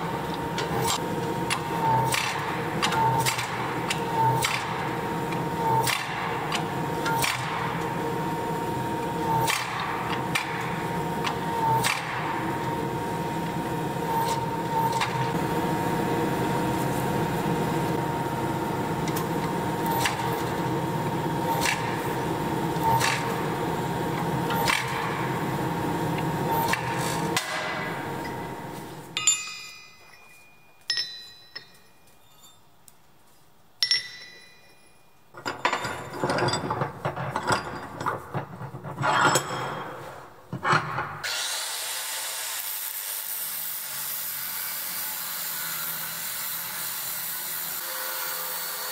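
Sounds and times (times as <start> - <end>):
metal clinks: 29.2 - 32.7, 33.8 - 36.7
angle grinder cutting steel: 41.2 - 48.9.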